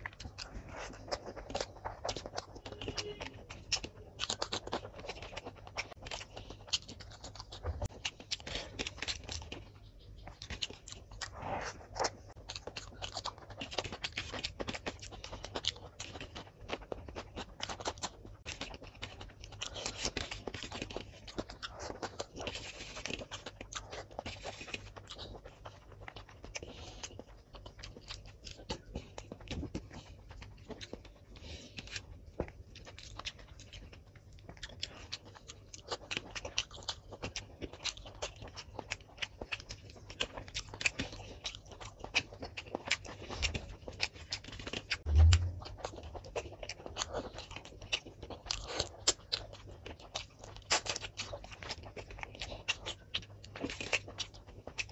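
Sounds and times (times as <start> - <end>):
wet chewing and lip smacking: 0.0 - 54.9
loud low thump: 45.1 - 45.8.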